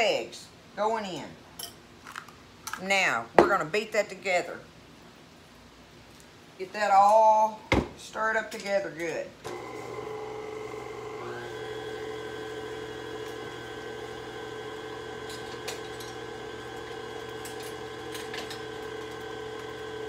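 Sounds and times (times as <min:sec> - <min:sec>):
stand mixer running: 0:09.5 - 0:20.0.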